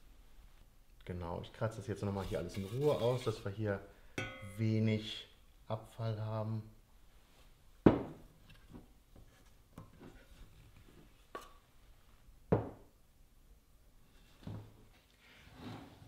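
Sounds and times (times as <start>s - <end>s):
metal spoon scraping a steel jug: 2.2s - 3.5s
spoon knocking on jug: 4.2s - 4.5s.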